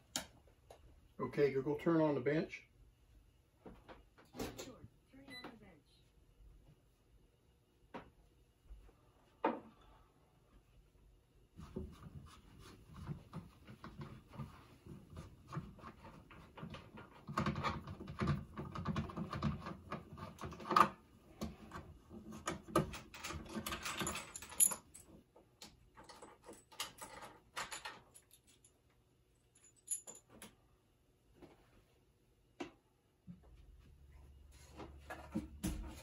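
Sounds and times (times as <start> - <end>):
small metallic clicks and rattles: 22.4 - 28.8.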